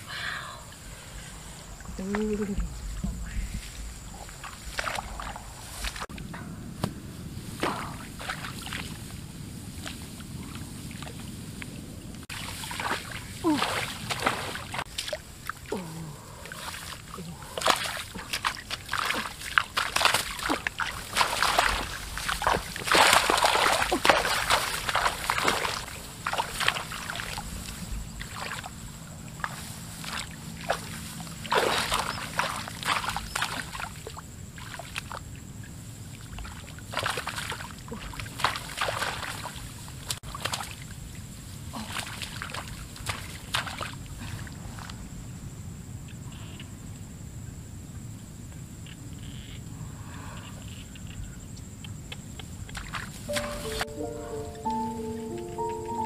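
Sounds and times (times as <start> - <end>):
shallow water splashing: 12.3 - 35.2, 36.0 - 41.2.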